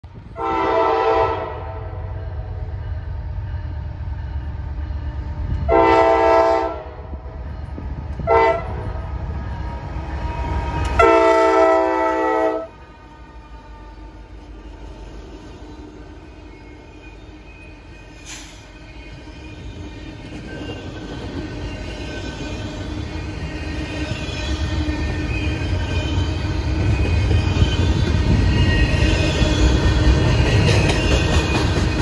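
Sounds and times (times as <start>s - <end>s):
locomotive air horn blasts: 0.4s - 2.2s, 5.7s - 7.1s, 8.2s - 9.0s, 10.9s - 13.9s.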